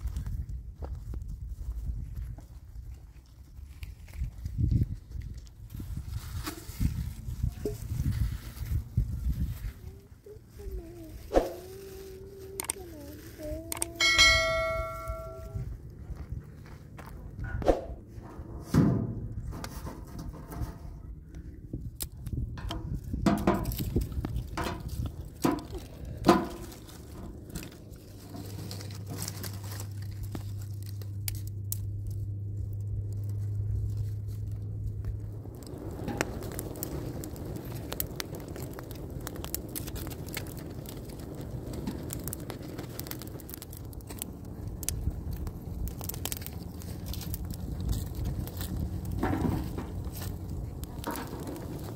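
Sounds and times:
low steady hum: 0.0s - 39.3s
fire crackling: 0.0s - 51.9s
twigs and leaves snapping: 10.8s - 14.0s, 23.6s - 51.9s.

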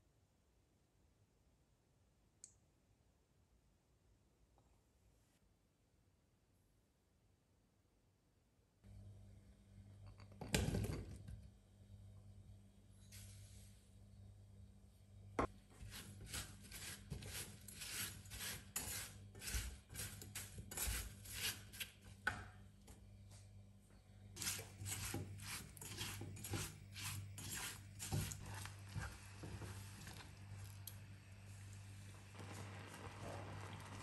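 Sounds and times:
spatula scraping saucepan: 15.8s - 22.1s, 24.4s - 30.7s.

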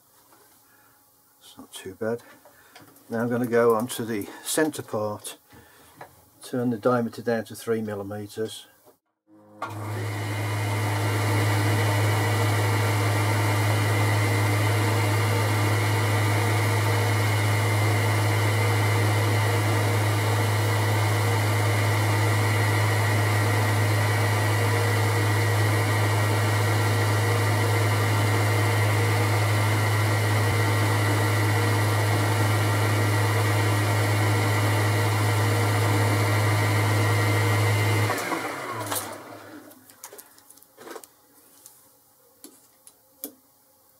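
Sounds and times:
lathe motor hum: 9.6s - 39.7s.

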